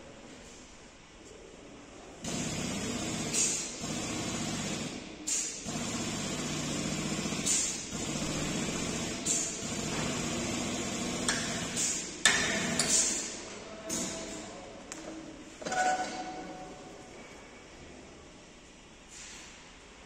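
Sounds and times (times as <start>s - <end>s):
air hissing: 2.2s - 10.8s, 11.4s - 14.1s, 19.1s - 19.8s
hydraulic pump buzzing hum: 2.2s - 13.2s.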